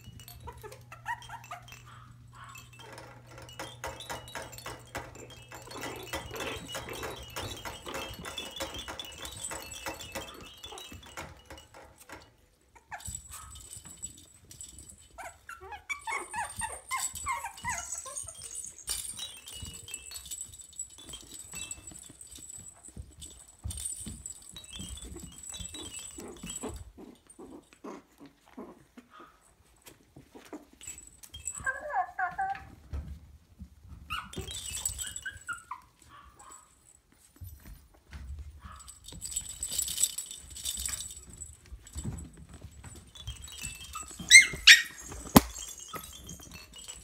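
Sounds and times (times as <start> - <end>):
high puppy whimpers: 0.0 - 11.3, 14.8 - 20.1, 31.4 - 32.8, 34.1 - 36.5, 43.6 - 46.6
puppies scuffling on bedding: 0.0 - 47.0.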